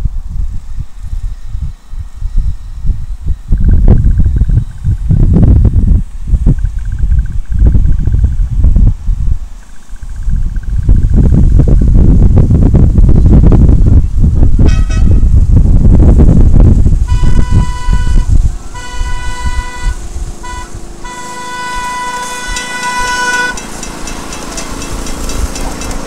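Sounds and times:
wind buffeting microphone: 0.0 - 26.0
train horn blasts: 14.6 - 15.5, 17.0 - 26.0.

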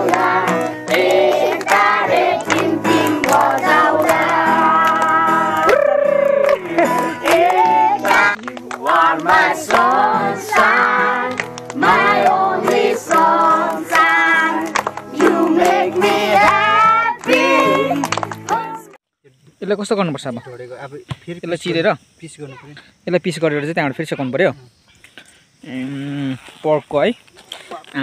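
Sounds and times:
children and man singing: 0.0 - 5.8, 6.7 - 19.0
children clapping: 0.0 - 19.0
strummed acoustic guitar: 0.0 - 19.0.

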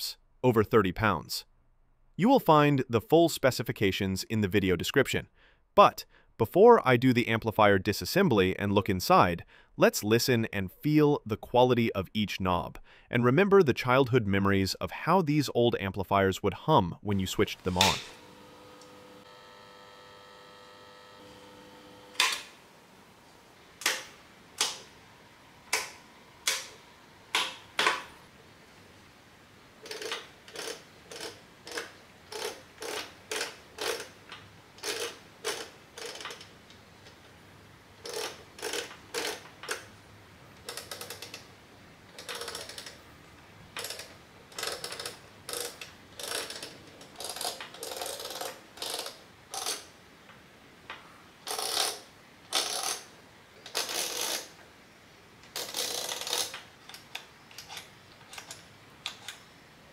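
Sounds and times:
knobs clicking through detents: 42.1 - 43.0, 43.8 - 49.8.

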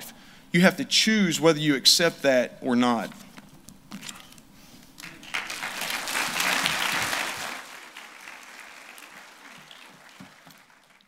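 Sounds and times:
congregation applauding: 5.0 - 11.0.

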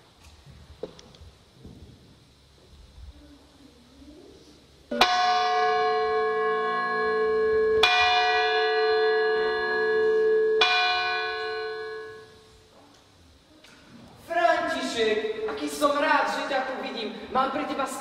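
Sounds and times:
church bell tolling: 4.9 - 12.5.

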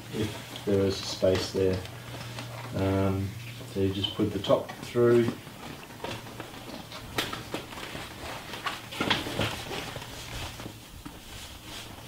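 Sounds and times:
stroller seat fabric handling: 4.3 - 12.0.

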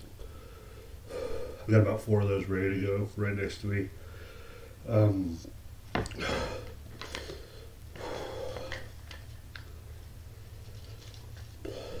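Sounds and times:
man breathing out heavily: 0.2 - 1.7, 4.0 - 4.8, 6.1 - 9.0, 11.6 - 12.0.

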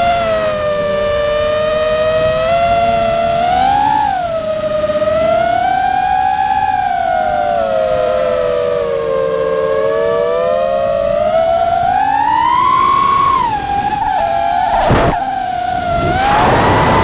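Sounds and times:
quadcopter motors whining: 0.0 - 17.0
short rushes of noise: 13.5 - 17.0.

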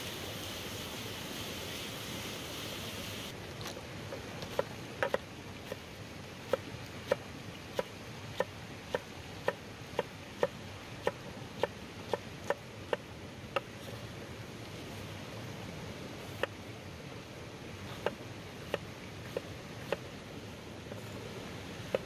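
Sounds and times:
steady hiss: 0.0 - 22.0
cleaver chopping on wooden board: 4.5 - 5.8.

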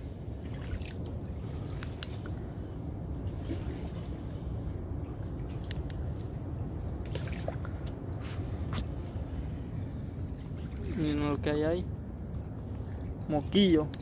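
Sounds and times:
water lapping against boat hull: 0.3 - 2.4, 7.0 - 9.0.

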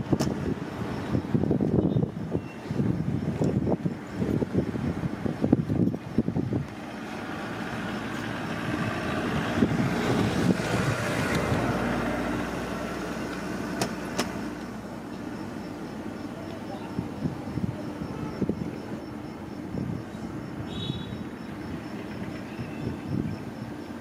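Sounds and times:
vehicle passing: 6.1 - 23.7.

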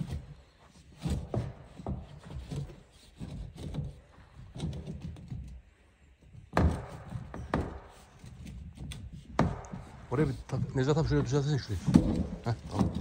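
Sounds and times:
knocks and thuds of hand work: 0.0 - 13.0
sharp loud knocks: 6.5 - 8.3, 9.2 - 13.0.

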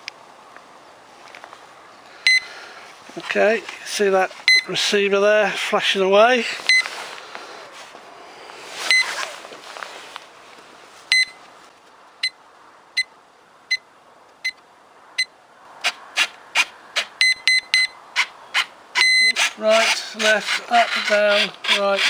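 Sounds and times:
radio-control receiver beeping: 4.5 - 4.7, 6.6 - 6.9, 8.8 - 9.2, 17.2 - 18.0, 19.0 - 19.4.

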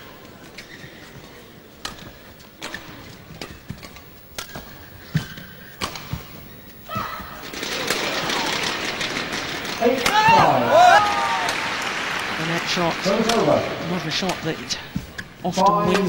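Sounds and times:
shoes squeaking on court: 0.1 - 8.1
rackets striking shuttlecock: 1.8 - 6.5
crowd noise: 6.8 - 16.0.

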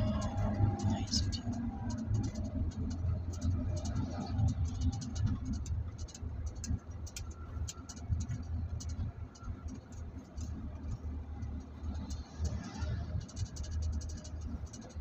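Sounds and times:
engine and road rumble: 0.0 - 15.0
light clicks and rattles: 0.0 - 15.0.

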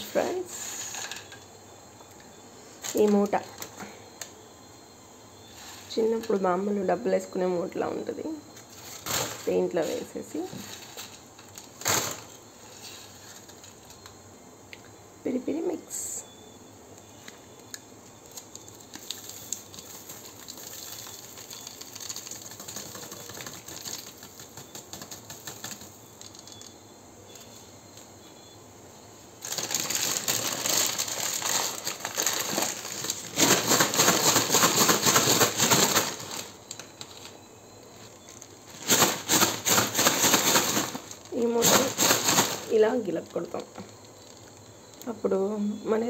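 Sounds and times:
paper bag rustling: 8.7 - 13.8, 18.4 - 26.7, 29.4 - 37.4, 38.0 - 43.6
paper bag shaken and crinkling: 8.8 - 12.3, 18.9 - 26.6, 29.4 - 37.3, 38.7 - 43.6.

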